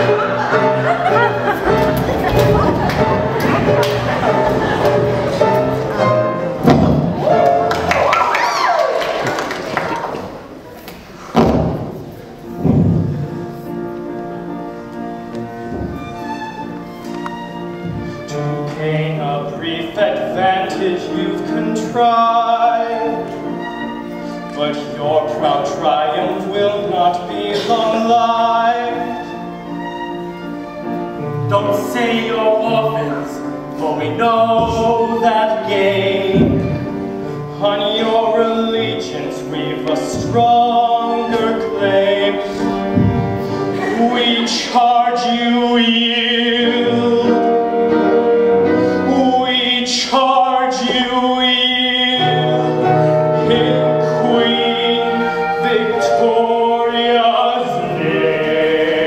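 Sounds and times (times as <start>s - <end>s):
instrumental accompaniment: 0.0s - 8.4s, 9.3s - 59.0s
operetta singing: 15.5s - 59.0s
man singing: 18.2s - 23.4s, 24.4s - 29.3s, 31.4s - 48.2s, 48.8s - 59.0s.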